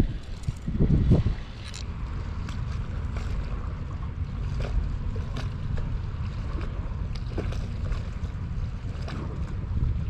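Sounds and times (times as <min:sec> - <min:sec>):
water lapping splashes: 0:00.0 - 0:10.0
wind buffeting microphone: 0:00.0 - 0:10.0.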